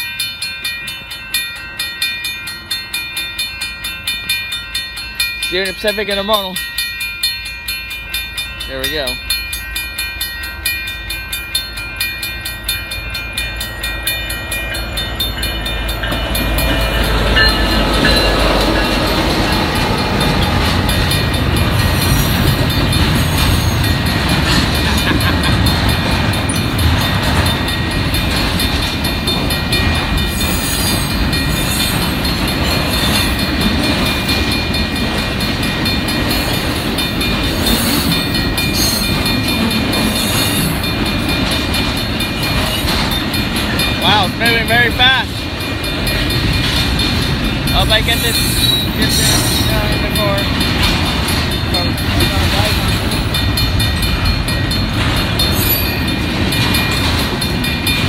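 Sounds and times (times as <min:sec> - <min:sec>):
freight train rumble: 0:00.0 - 0:58.0
railroad crossing bell ringing: 0:00.0 - 0:58.0
train wheels clattering on rails: 0:11.6 - 0:58.0.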